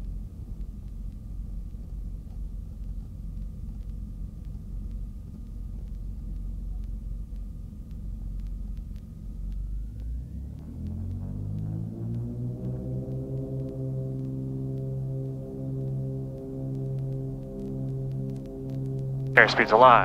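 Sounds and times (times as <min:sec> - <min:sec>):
thin steady whine: 0:00.0 - 0:20.0
twin aircraft engines running: 0:00.0 - 0:20.0.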